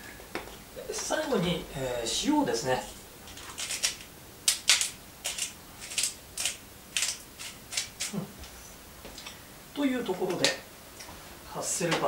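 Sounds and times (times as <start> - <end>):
salt mill grinding: 3.3 - 8.1.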